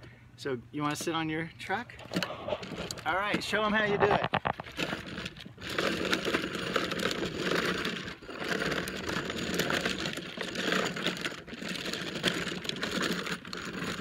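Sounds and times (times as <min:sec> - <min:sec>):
plastic wheels rattling on asphalt: 0:00.9 - 0:14.0.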